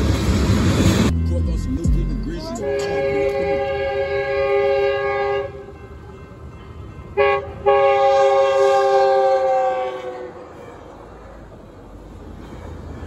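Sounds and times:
train air horn blasts: 0:02.5 - 0:05.8, 0:07.2 - 0:10.6.

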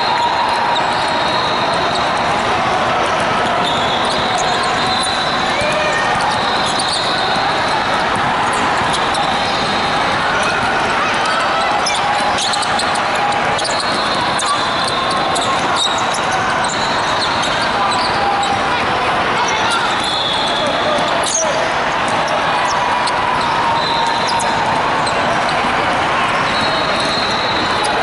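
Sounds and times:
many overlapping voices: 0:00.0 - 0:28.0
sneakers squeaking on hardwood: 0:03.5 - 0:10.7, 0:11.3 - 0:18.2, 0:19.6 - 0:25.6
basketball bouncing: 0:20.8 - 0:21.4.

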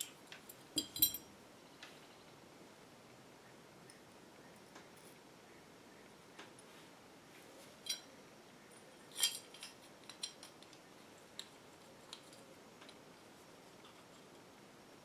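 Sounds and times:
small metal parts clinking: 0:00.0 - 0:01.3, 0:07.8 - 0:08.1, 0:09.1 - 0:10.8.

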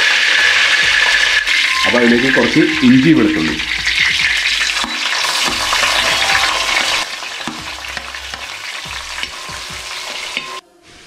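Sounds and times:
food sizzling in hot oil: 0:00.0 - 0:11.0
spatula stirring: 0:02.7 - 0:10.6.

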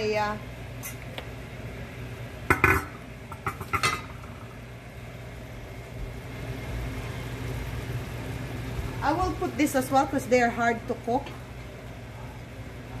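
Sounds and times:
pot lid clanking on metal: 0:02.5 - 0:04.2.

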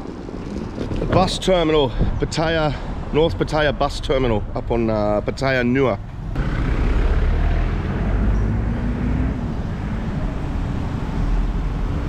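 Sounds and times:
cars driving past: 0:06.1 - 0:12.0.

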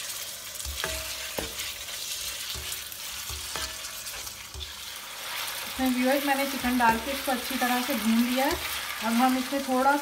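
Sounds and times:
chicken sizzling in hot oil: 0:00.0 - 0:10.0
spatula knocking against pan: 0:00.7 - 0:01.7, 0:02.5 - 0:04.8.

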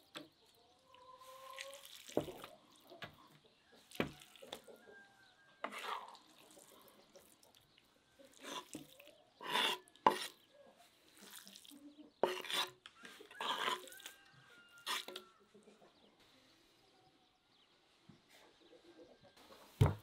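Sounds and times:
wet slaps and scrapes: 0:01.4 - 0:02.6.

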